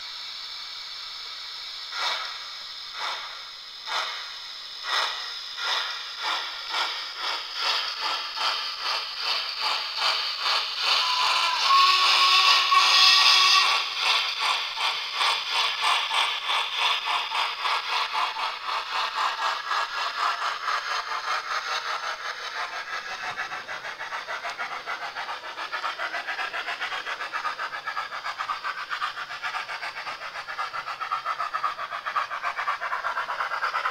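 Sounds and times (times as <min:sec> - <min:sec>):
steam engine chuffs: 0:00.0 - 0:33.9
steam hiss: 0:00.0 - 0:33.9
train whistle: 0:10.9 - 0:14.0.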